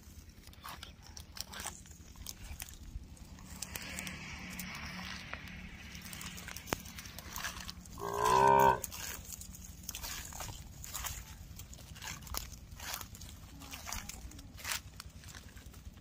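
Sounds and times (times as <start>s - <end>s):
calf mooing: 8.0s - 9.0s.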